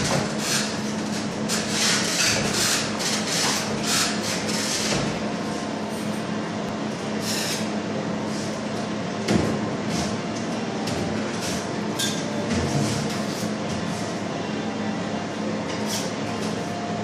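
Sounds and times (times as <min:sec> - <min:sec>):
steady low hum: 0:00.0 - 0:17.0
hand tools scraping plasterboard: 0:01.5 - 0:05.1.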